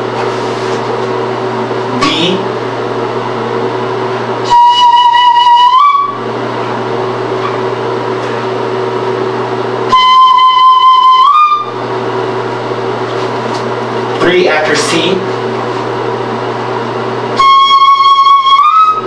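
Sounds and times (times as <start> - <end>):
steady low hum: 0.0 - 19.0
flute playing long high notes: 4.4 - 6.3, 9.9 - 11.8, 17.4 - 19.0.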